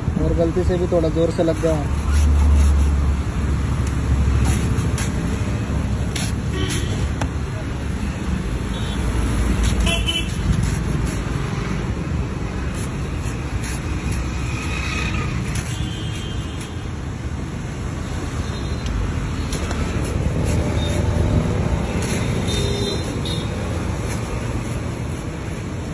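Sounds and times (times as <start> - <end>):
road traffic rumble: 0.0 - 25.9
knife cutting coconut husk: 1.4 - 3.2, 9.5 - 11.5, 12.6 - 14.6.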